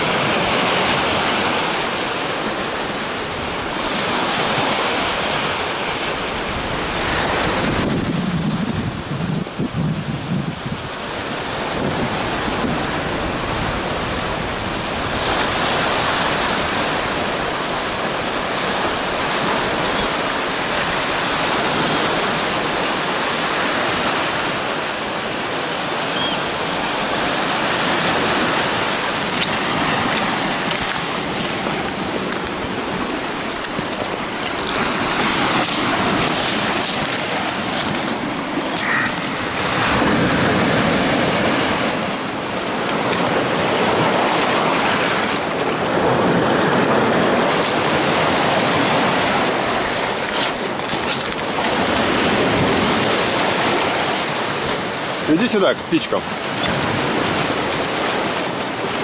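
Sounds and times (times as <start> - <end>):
waves washing onto stony shore: 0.0 - 59.0.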